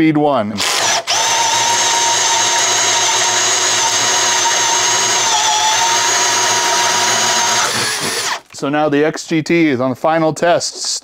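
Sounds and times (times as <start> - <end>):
cordless drill boring into wood: 0.6 - 8.5.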